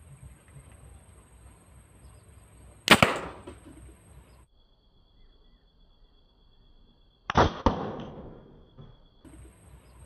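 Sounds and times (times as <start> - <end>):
insect chirring: 0.0 - 10.0.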